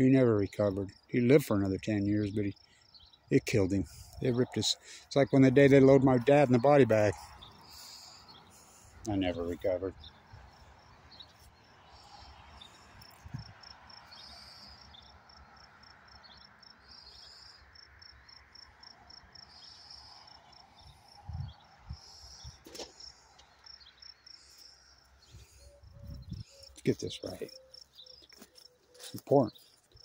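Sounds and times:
crickets chirping: 6.8 - 30.0.

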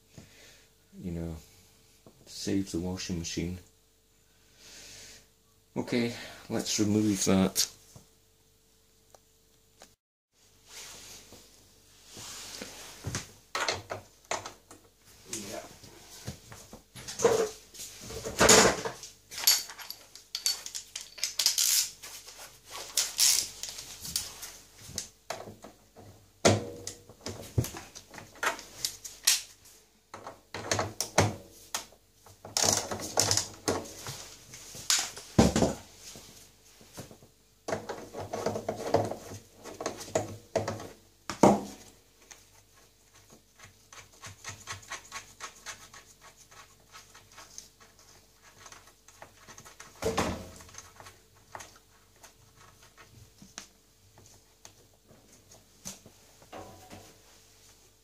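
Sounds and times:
tools knocking and scraping: 17.0 - 21.9, 56.5 - 57.2.

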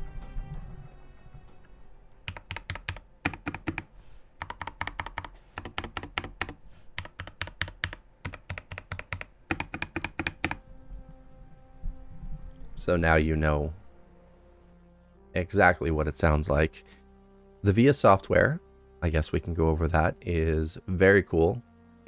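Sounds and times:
mechanical keyboard typing: 2.3 - 10.6.

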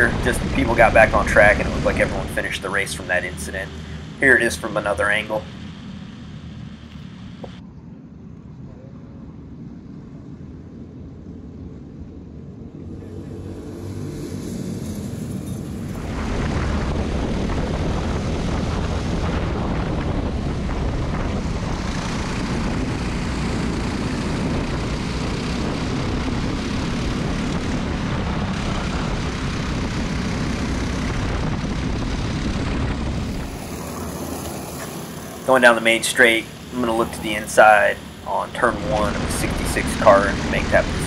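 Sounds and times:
kart engine running: 0.0 - 7.6, 13.2 - 41.0
distant rumble of karts: 0.0 - 41.0
wind over microphone: 14.3 - 35.5.

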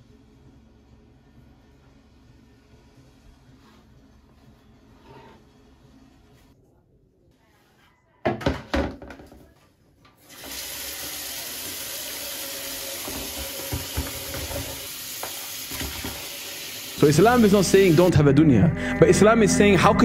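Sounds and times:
tap running into basin: 10.3 - 16.7.

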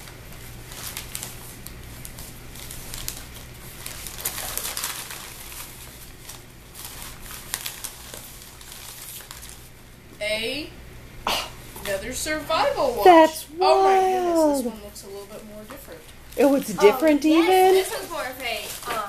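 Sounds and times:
paper envelope rustling and tearing: 0.0 - 9.8, 16.3 - 19.0.

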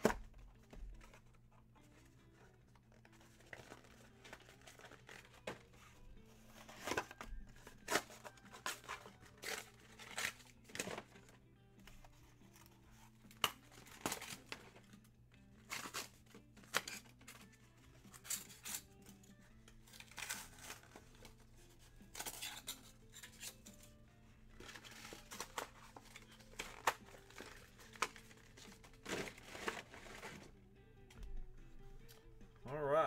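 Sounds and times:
faint background music: 0.0 - 33.0
packaging tearing and crinkling: 2.9 - 5.7, 6.6 - 11.3, 13.4 - 14.8, 15.6 - 17.4, 18.1 - 19.0, 19.8 - 21.4, 24.6 - 30.5.

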